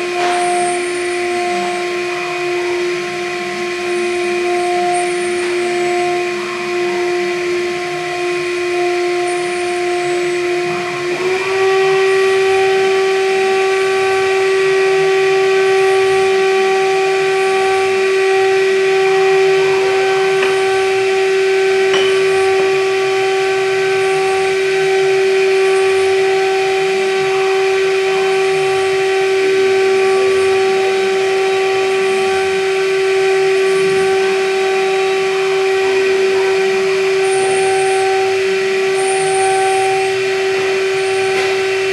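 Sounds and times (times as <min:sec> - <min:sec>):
milling machine spindle whining: 0:00.0 - 0:41.9
end mill cutting plastic: 0:17.8 - 0:26.3.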